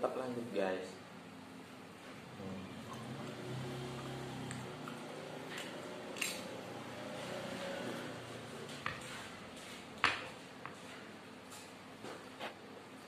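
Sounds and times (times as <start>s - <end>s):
electric fan hum: 0.0s - 13.0s.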